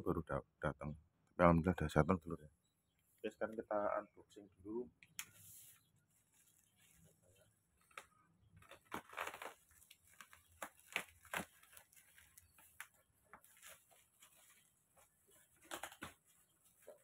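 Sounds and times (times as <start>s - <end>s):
packing tape and plastic crinkling: 7.8s - 17.0s.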